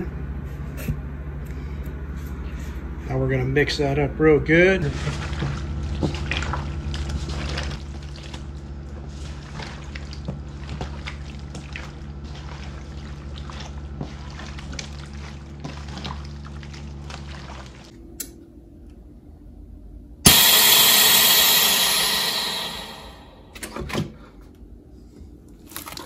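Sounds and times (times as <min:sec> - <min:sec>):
wet squelching of meat mixed by hand: 0:04.5 - 0:17.9, 0:25.6 - 0:26.0
steady low hum: 0:17.9 - 0:23.6.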